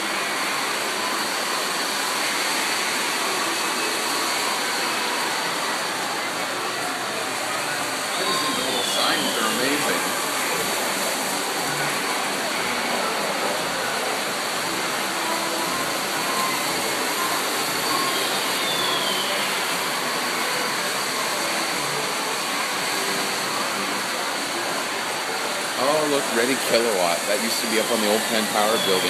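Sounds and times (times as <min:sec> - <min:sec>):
steady rushing background noise: 0:00.0 - 0:29.0.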